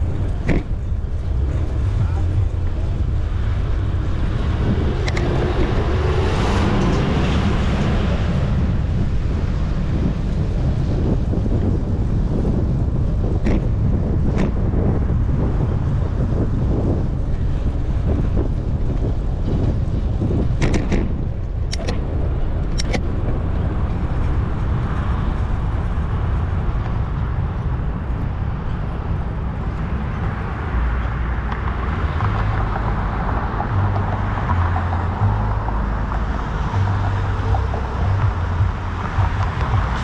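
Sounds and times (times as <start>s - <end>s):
road and traffic noise: 0.0s - 40.0s
wind buffeting microphone: 0.0s - 40.0s
sharp clicks: 21.7s - 22.0s, 22.7s - 23.0s.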